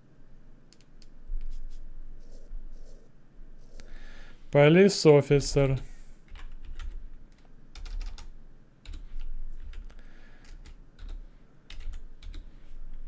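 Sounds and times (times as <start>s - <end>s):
typing on computer keyboard: 5.7s - 12.5s.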